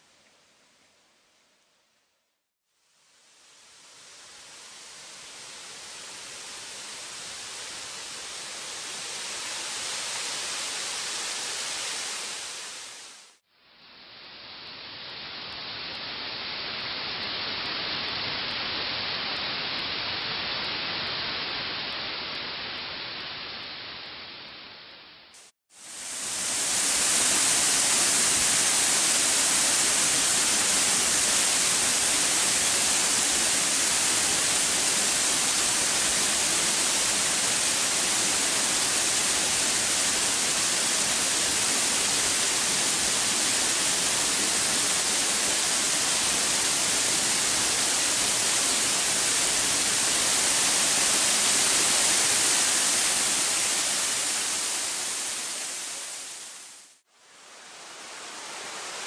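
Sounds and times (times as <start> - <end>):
waterfall rushing: 4.5 - 13.3, 25.8 - 56.8.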